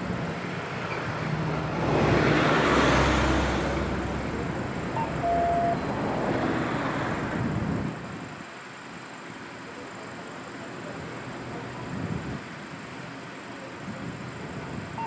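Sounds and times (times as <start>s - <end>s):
steady traffic noise: 0.0s - 15.0s
car passing by: 0.6s - 7.7s
short beep: 5.0s - 5.9s.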